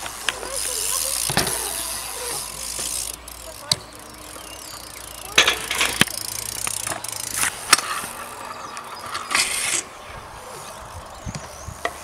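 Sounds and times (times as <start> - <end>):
bike knock: 0.0 - 4.1, 5.2 - 8.2
tyres rolling on concrete: 0.0 - 12.0.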